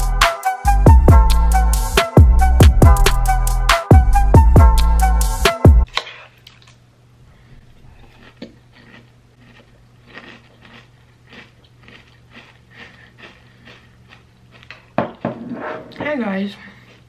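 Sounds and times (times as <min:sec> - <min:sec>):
crunching and chewing cereal: 0:07.8 - 0:15.2, 0:16.6 - 0:17.0.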